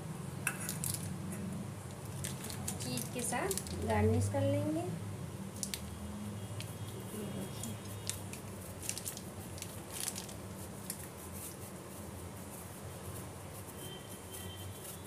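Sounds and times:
cheese grating on metal grater: 6.7s - 15.0s.

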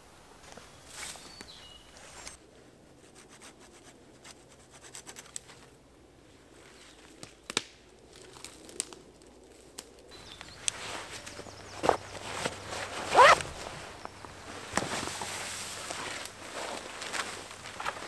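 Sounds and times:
branches snapping: 7.1s - 18.0s
branches rubbing and scratching: 8.1s - 18.0s.

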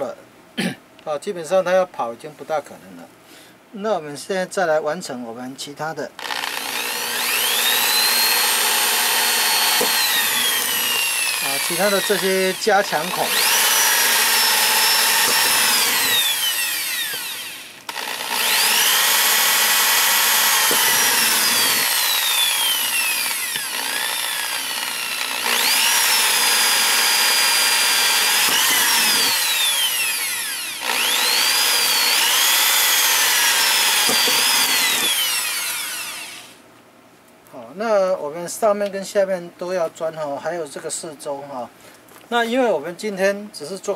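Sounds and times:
electric drill whining: 6.2s - 36.6s.

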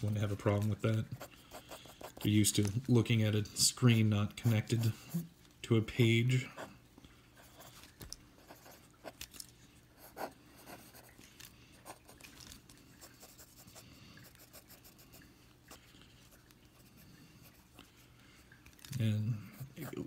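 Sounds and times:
pencil scratching on paper: 1.0s - 2.4s, 8.4s - 9.2s, 13.2s - 15.1s.

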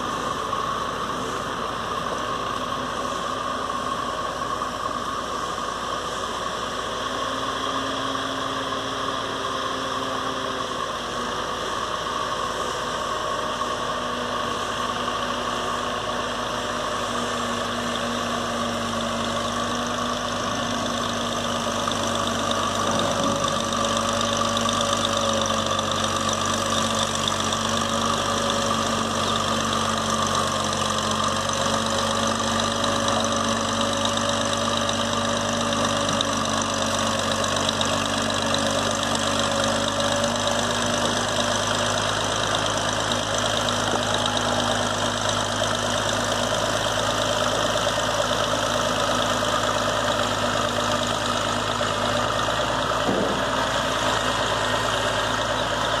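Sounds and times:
bulldozer diesel engine running: 0.0s - 56.0s.

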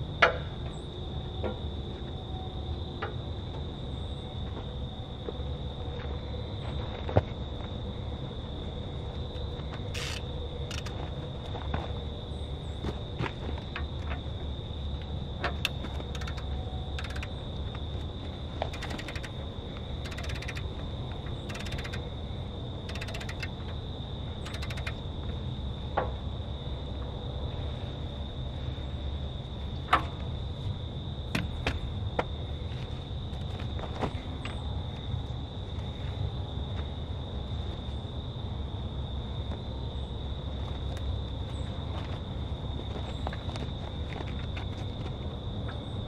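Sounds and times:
insect chorus: 0.0s - 46.0s
sharp clicks and knocks: 10.0s - 11.0s, 15.4s - 17.5s, 18.6s - 22.1s, 22.9s - 23.8s, 24.4s - 25.0s.

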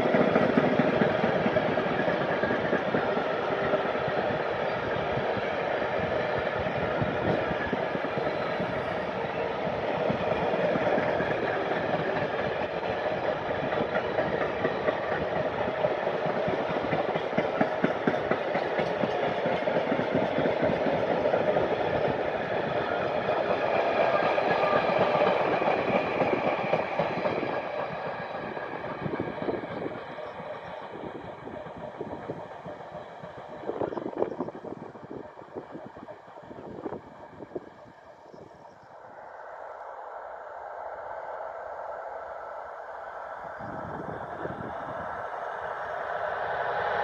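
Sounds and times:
freight train wheels clattering: 0.0s - 5.4s, 6.1s - 34.8s.

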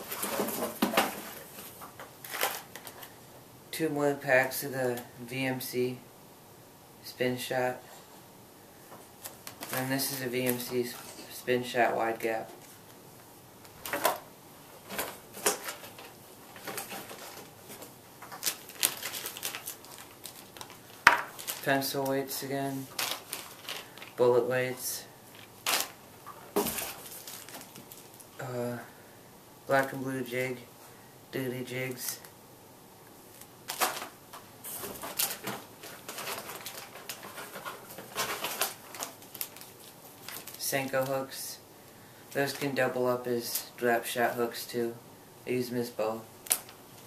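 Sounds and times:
plastic packages crinkling: 2.2s - 3.1s, 14.9s - 24.2s, 25.3s - 28.4s, 33.3s - 41.0s, 46.4s - 47.0s
packs set down on desk: 26.5s - 28.0s.

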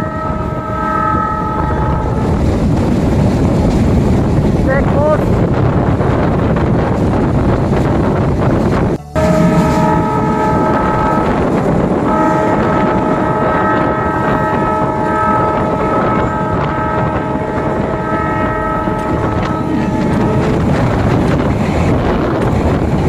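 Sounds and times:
train horn blasts: 0.0s - 2.4s, 8.8s - 22.0s
train running rumble: 0.0s - 23.0s
wind on microphone: 0.0s - 23.0s.

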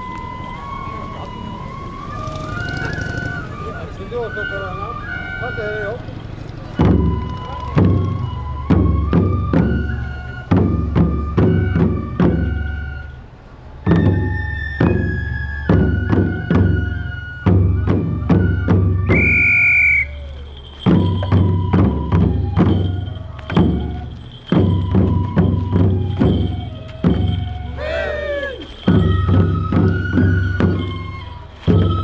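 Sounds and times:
drums in driving pattern: 20.0s - 32.0s
ringing metallic strikes: 20.1s - 32.0s.

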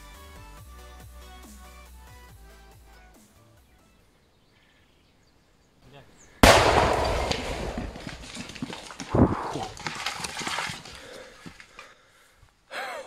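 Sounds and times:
firecracker blast echo: 6.4s - 9.9s
debris thudding on ground: 6.4s - 11.8s.

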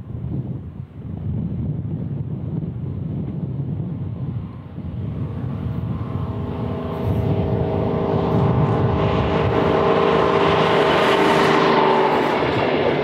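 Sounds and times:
train wheels rumbling on rails: 1.5s - 13.0s
diesel engine running: 3.7s - 13.0s.

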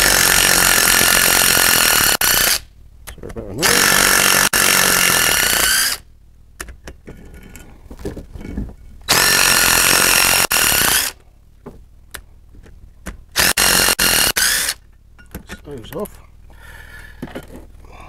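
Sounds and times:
power tool whining: 3.6s - 6.0s, 9.1s - 11.2s, 13.4s - 14.8s.

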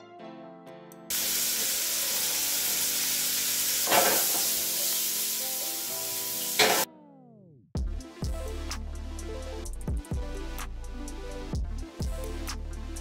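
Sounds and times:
background music: 0.0s - 13.0s
hot oil sizzling: 1.1s - 6.9s.

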